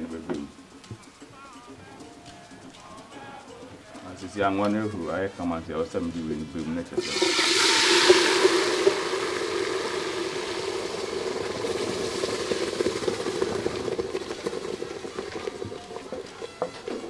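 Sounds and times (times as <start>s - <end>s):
paste sizzling in hot oil: 6.9s - 17.0s.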